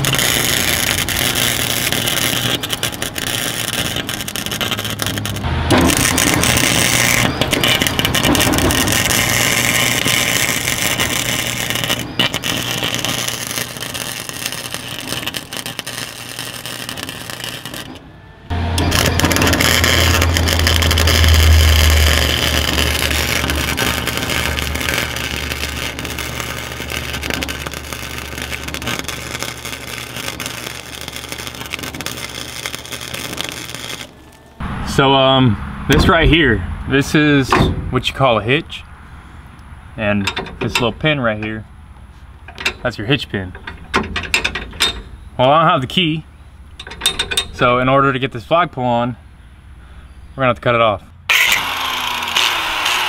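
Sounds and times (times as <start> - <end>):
arc welding crackle and hiss: 0.0 - 35.4, 51.3 - 53.0
low hum: 0.0 - 48.5.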